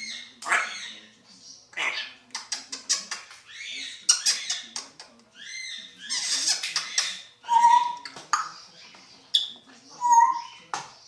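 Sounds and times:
parrot squeaky mimicked sounds: 5.5 - 8.1, 9.4 - 10.5.

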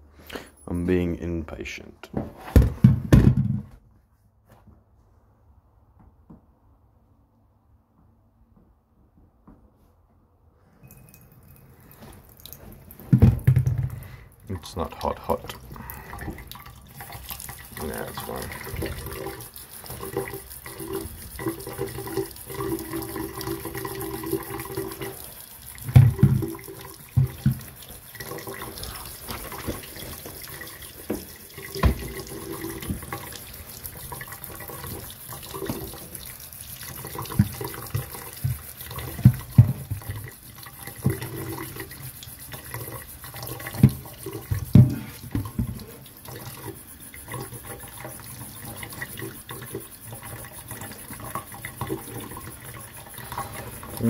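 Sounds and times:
water splashing on metal: 11.1 - 54.0.

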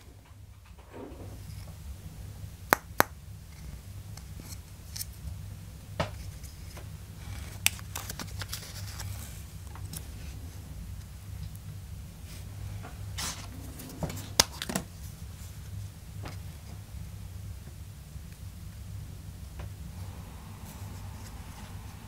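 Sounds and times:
paper rustling and rubbing: 6.3 - 10.6.

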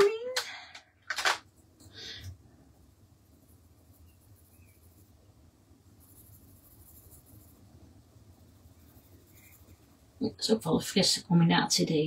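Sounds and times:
low steady hum: 0.0 - 12.0
pencil scratching on paper: 3.2 - 5.2, 5.8 - 10.1.

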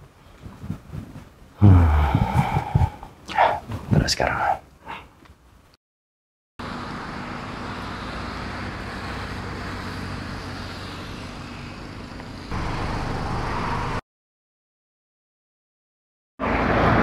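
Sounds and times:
car engine running: 6.6 - 14.0
road traffic noise: 6.6 - 14.0, 16.4 - 17.0.

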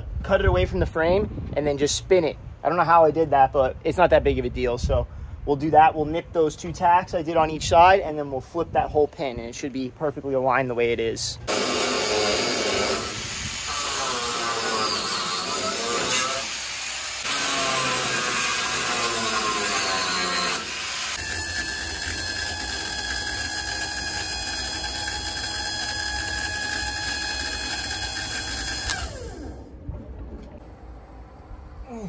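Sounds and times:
angle grinder cutting steel: 11.5 - 29.5.

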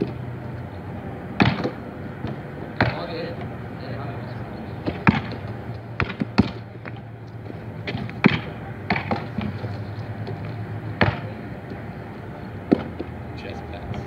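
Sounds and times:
basketball smacking hands and pavement: 1.4 - 3.1, 4.8 - 11.8.

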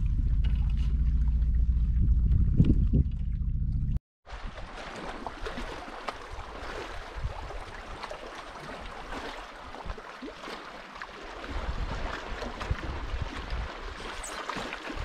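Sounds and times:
wind buffeting microphone: 0.0 - 4.0, 11.5 - 14.0
small waves lapping against hull: 0.2 - 15.0.

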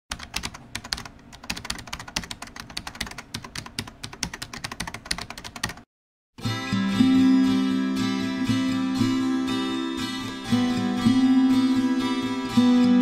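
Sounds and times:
fast computer keyboard typing: 0.1 - 5.9.

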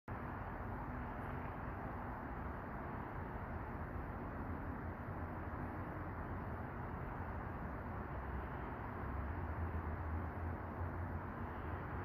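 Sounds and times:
distant city traffic rumble: 0.1 - 12.0
faint steady hum: 0.1 - 12.0.

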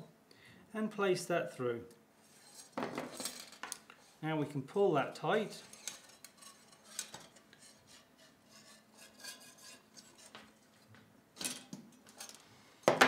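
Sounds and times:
wire scraping on metal: 2.2 - 4.2, 5.5 - 10.9.

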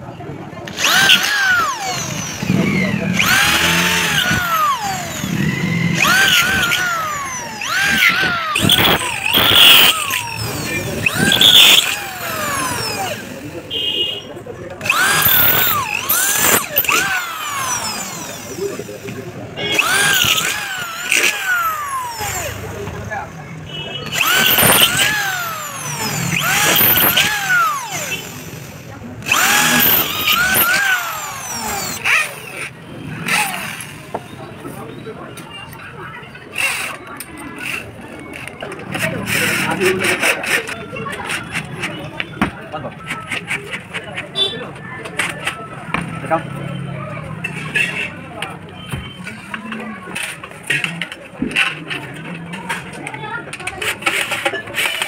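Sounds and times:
electric drill motor whine: 0.6 - 13.9, 14.8 - 23.4, 24.0 - 34.0
drill bit grinding through metal: 0.6 - 34.4.

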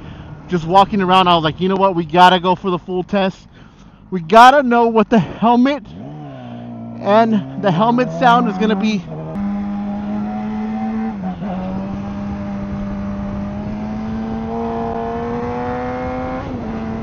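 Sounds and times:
motorcycle engine running: 6.0 - 17.0
wind rush: 11.0 - 17.0.

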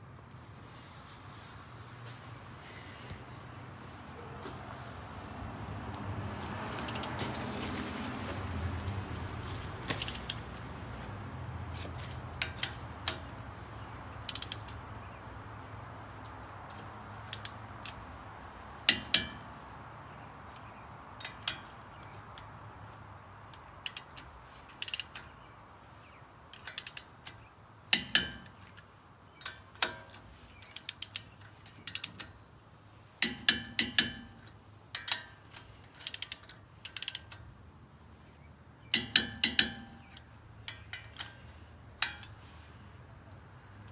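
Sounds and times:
socket ratchet clicking: 12.4 - 14.8, 17.2 - 18.0, 18.8 - 19.6, 23.6 - 25.5, 26.6 - 28.8, 29.4 - 32.4, 33.2 - 37.5, 38.9 - 42.4.

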